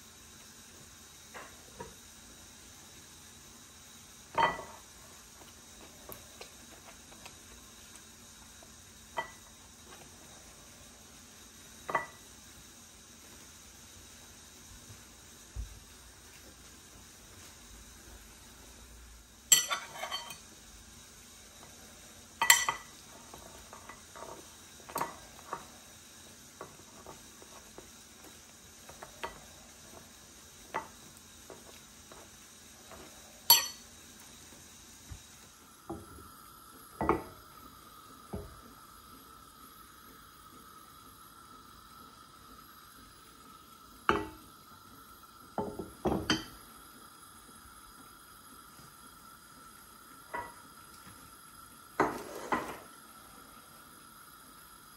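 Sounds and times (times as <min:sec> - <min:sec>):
faint steady hum: 0:00.0 - 0:54.9
fork clinking and scraping a bowl: 0:19.5 - 0:20.4, 0:33.5 - 0:33.8
frying pan clanking on metal grate: 0:19.5 - 0:20.4, 0:22.4 - 0:22.9, 0:33.5 - 0:33.8.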